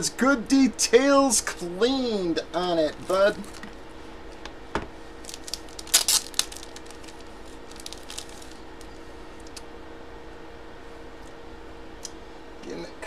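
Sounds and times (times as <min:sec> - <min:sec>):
packaging crinkle: 0:02.9 - 0:04.4, 0:05.2 - 0:09.6.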